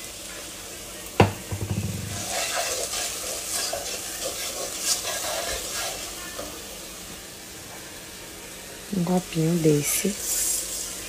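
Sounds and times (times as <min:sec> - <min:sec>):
light sizzle of frying: 0:00.0 - 0:11.0
wooden spoon scraping a pan: 0:02.0 - 0:06.1.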